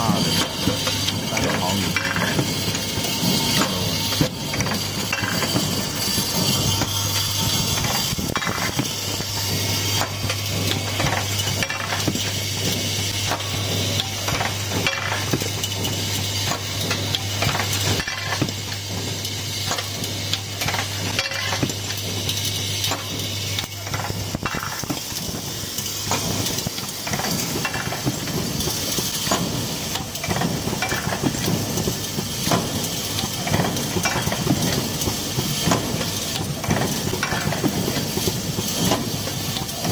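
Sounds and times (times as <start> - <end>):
machine clattering metallic clicks: 0.0 - 39.9.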